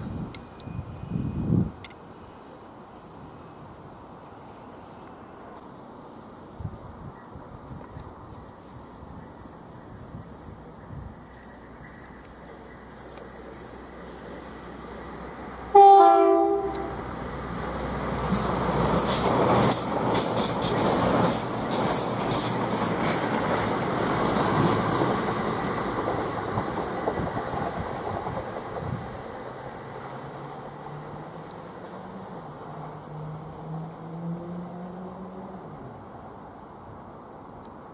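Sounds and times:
two-tone train horn: 15.7s - 17.0s
train wheels clacking on rails: 18.1s - 31.0s.

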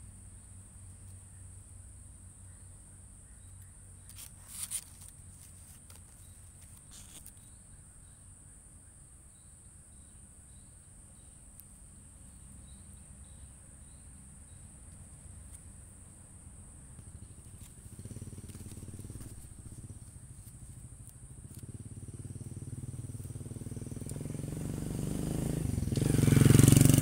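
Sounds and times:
insects droning: 0.0s - 27.0s
scratchy rustle: 4.1s - 7.4s, 17.4s - 20.8s.

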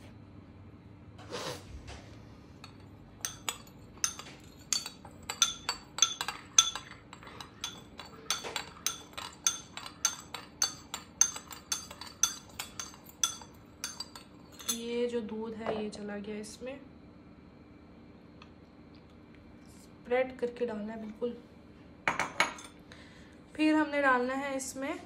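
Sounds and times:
spoon clinking ceramic bowl: 2.6s - 14.9s, 22.1s - 22.8s.

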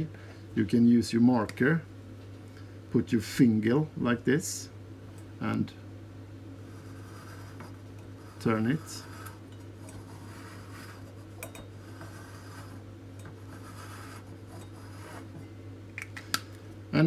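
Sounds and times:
marker scratching on sheet metal: 6.6s - 12.8s, 13.4s - 15.4s.

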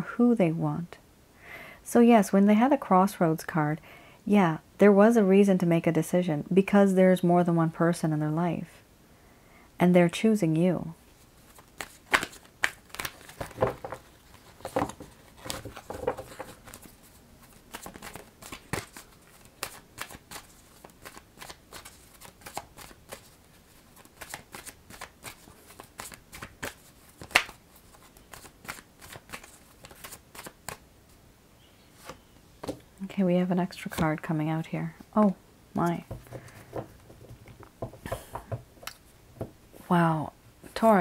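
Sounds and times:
cards being shuffled: 11.4s - 30.8s, 35.9s - 38.5s.

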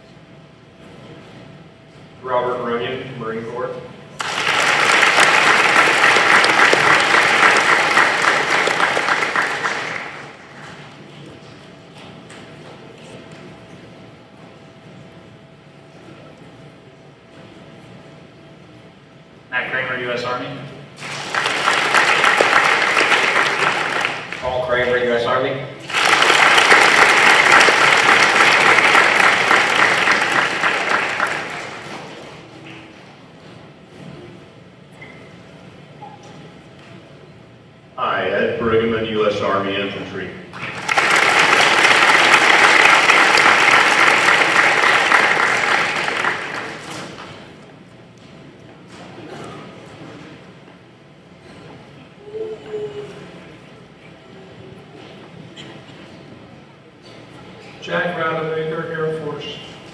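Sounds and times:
audience applauding: 4.2s - 11.1s, 21.0s - 24.9s, 25.8s - 32.5s, 40.5s - 47.6s.

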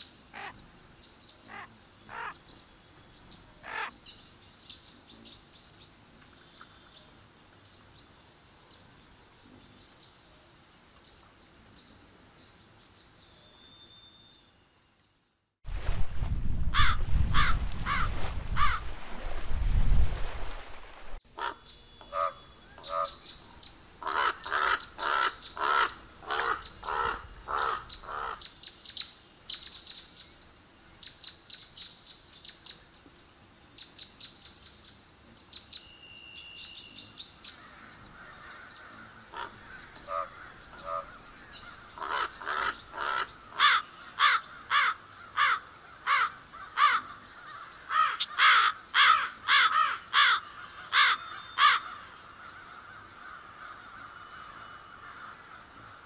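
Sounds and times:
crows cawing: 16.8s - 18.8s, 21.4s - 23.2s, 24.0s - 28.4s, 37.6s - 56.0s.

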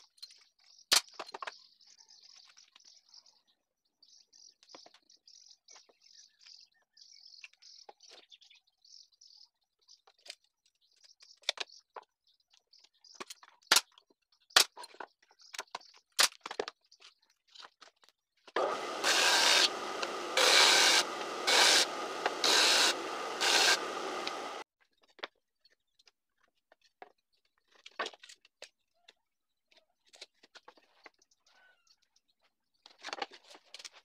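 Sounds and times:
table saw cutting wood: 18.6s - 24.6s.

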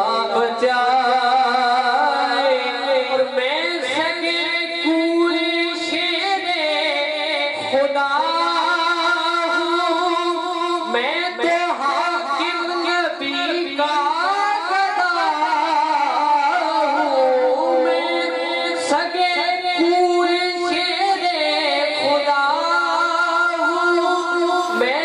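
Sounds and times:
man singing into a microphone: 0.0s - 25.0s.

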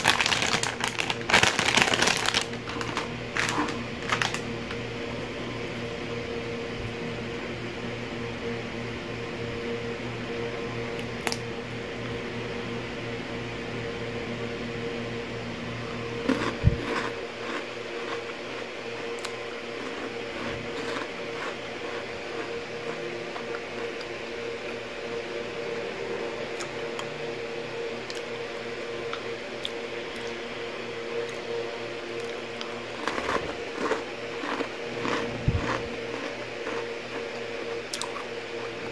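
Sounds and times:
steady electrical hum: 0.0s - 38.9s
biscuit snapping and chewing: 16.2s - 24.1s, 32.2s - 38.3s.

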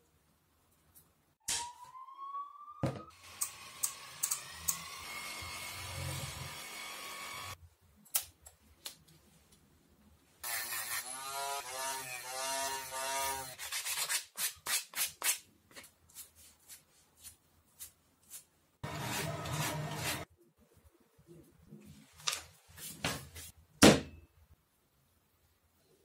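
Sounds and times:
rotary tool cutting: 3.2s - 7.6s, 18.8s - 20.3s
sandpaper scraping: 16.1s - 20.3s
block scrubbing on sandpaper: 16.2s - 20.3s.

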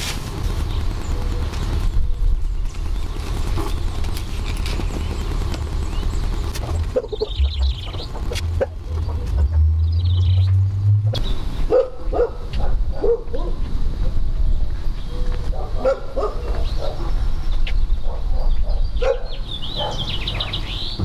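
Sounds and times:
low rumble: 0.2s - 11.6s.

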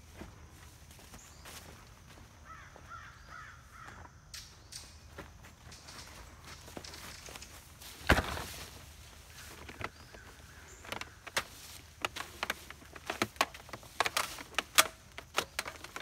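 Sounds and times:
hose and cord clicking and knocking: 9.4s - 16.0s.

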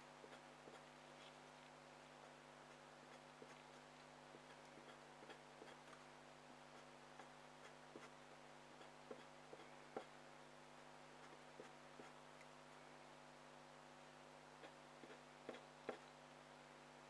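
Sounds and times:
steady low hum: 0.0s - 17.0s
drawing tip scratching on paper: 2.1s - 6.1s, 6.7s - 8.2s, 8.8s - 10.2s.

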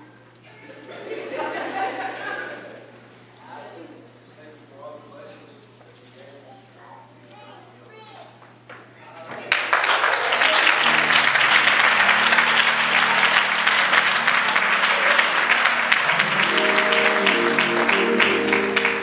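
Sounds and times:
congregation applauding: 9.2s - 19.0s
held instrumental chords: 10.8s - 19.0s.

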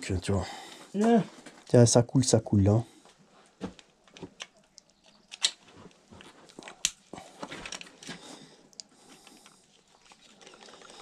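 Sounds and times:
light clicks and rustles: 3.1s - 11.0s.

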